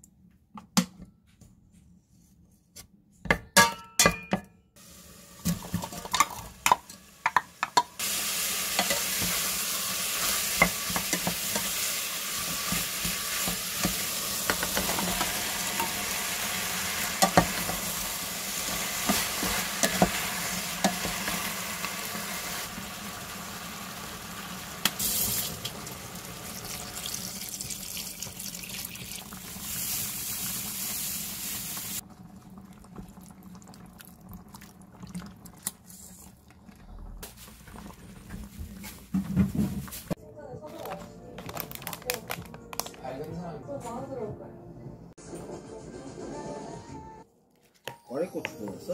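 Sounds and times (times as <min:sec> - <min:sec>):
meat and onion sizzling in oil: 0:04.8 - 0:33.1.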